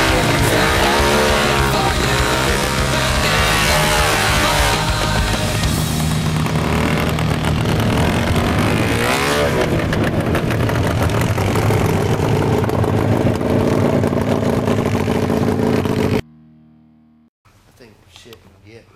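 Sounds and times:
snow vehicle engine revving: 0.0s - 16.2s.

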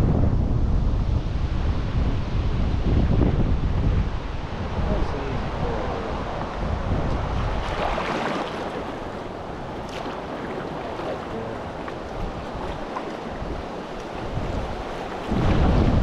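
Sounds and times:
wind buffeting microphone: 0.0s - 16.0s
river water rushing and splashing: 4.2s - 16.0s.

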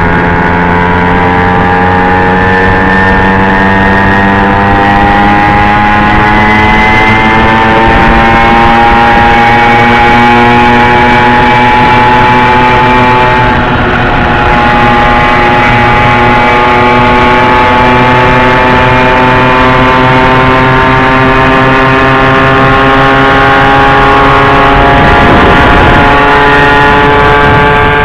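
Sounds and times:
moped engine running: 0.0s - 28.0s
second moped engine: 0.0s - 28.0s.

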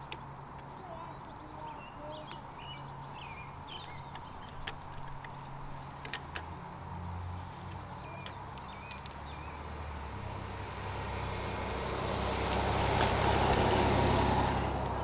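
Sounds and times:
small birds chirping: 0.0s - 10.6s.

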